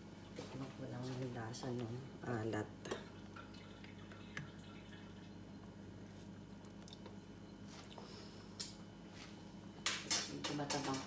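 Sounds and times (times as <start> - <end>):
steady low hum: 0.0 - 11.0
broth dripping into pot: 2.8 - 7.4.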